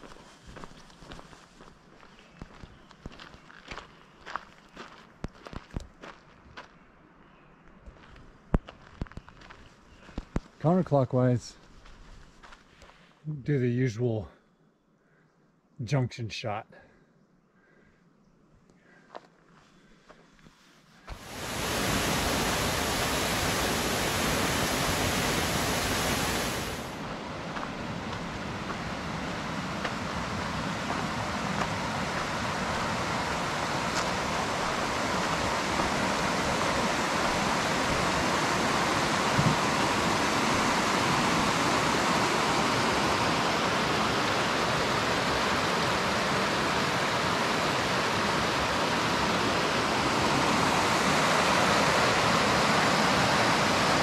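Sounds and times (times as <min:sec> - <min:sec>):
fast-flowing mountain water rushing: 0:21.1 - 0:27.0, 0:28.2 - 0:54.0.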